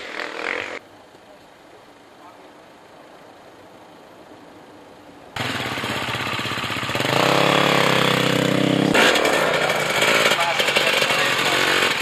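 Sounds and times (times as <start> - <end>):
motorcycle engine revving: 5.4 - 12.0.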